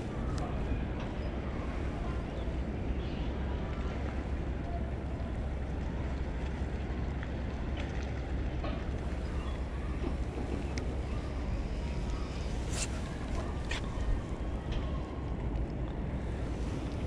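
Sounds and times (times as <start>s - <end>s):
sea wash: 0.0s - 17.0s.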